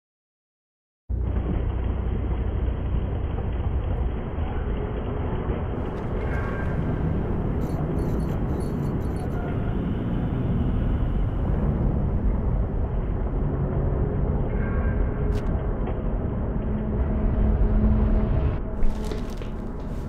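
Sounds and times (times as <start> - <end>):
escalator machinery rumbling: 1.1 - 14.5.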